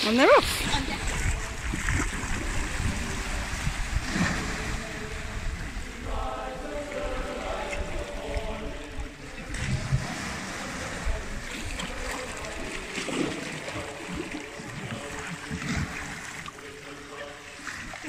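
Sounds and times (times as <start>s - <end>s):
water splashing around kayak: 0.0s - 18.0s
small waves washing on stone: 9.6s - 16.9s.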